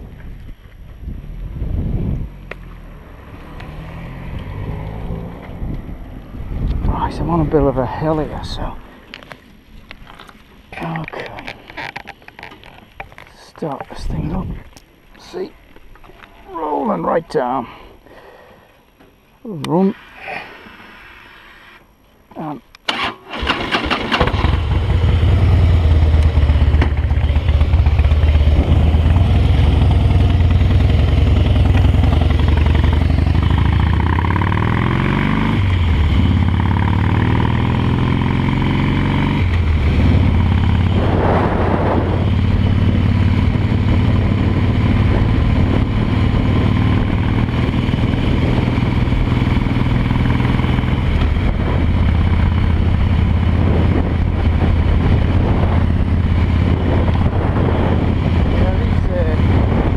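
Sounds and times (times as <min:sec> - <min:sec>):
motorcycle engine running: 0:23.9 - 0:59.9.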